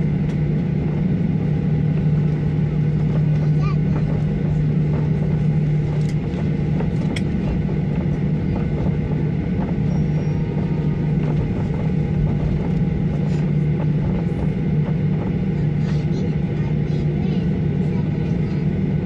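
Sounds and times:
jet engines idling in cabin: 0.0 - 19.0.

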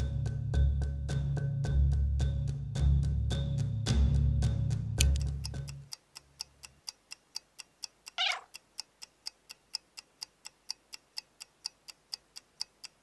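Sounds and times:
clock ticking: 5.0 - 13.0
cat meowing: 8.2 - 8.5.

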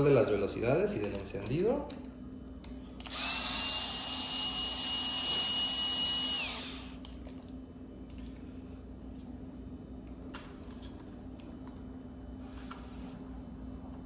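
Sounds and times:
power drill whining: 3.0 - 7.0.

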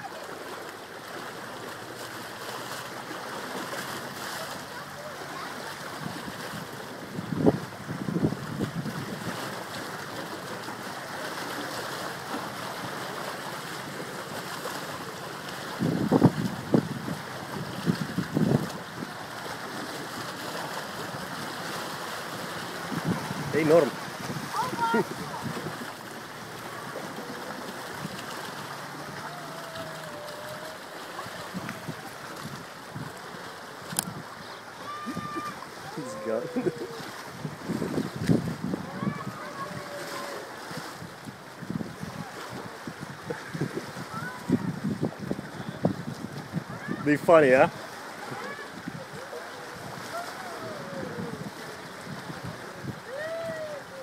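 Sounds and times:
ocean surf: 0.0 - 54.0
wind across microphone: 5.9 - 9.8, 15.7 - 19.3, 22.6 - 26.1, 29.0 - 34.4, 35.0 - 54.0.

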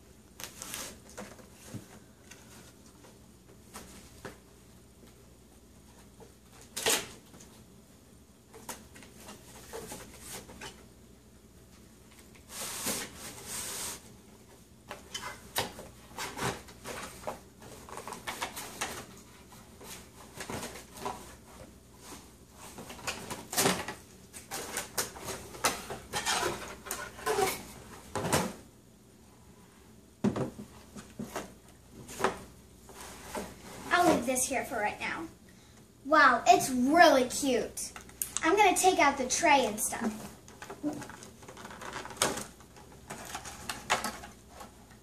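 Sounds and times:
cardboard rustling and scraping: 0.4 - 4.3, 8.6 - 10.8, 12.4 - 28.6, 30.6 - 34.4, 40.0 - 45.0.

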